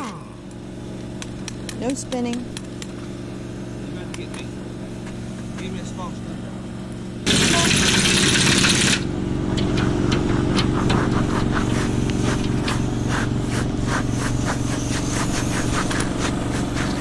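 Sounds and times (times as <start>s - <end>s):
engine running: 0.0s - 17.0s
air impact wrench hammering: 7.2s - 17.0s.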